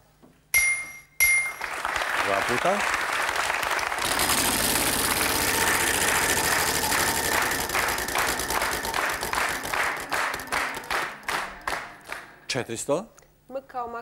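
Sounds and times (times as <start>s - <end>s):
applause: 1.4s - 12.3s.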